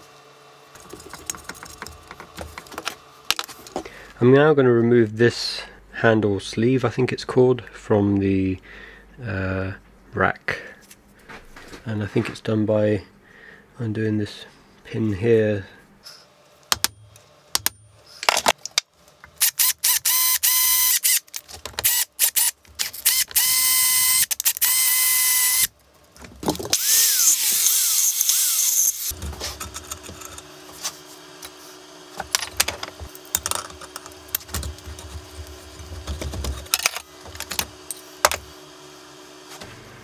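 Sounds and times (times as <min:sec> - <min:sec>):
cordless drill whining: 0:19.5 - 0:25.7
metal parts clicking: 0:32.3 - 0:35.1, 0:36.5 - 0:38.4.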